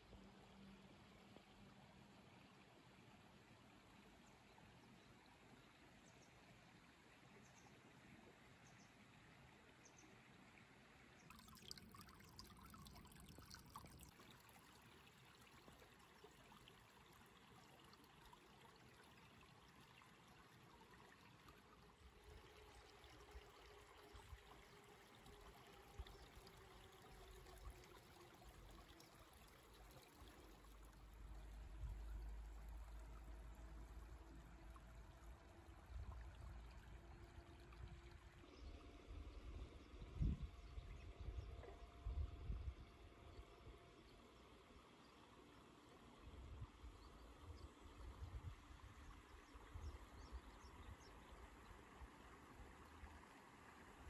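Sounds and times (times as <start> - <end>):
stream babbling: 11.2 - 39.6.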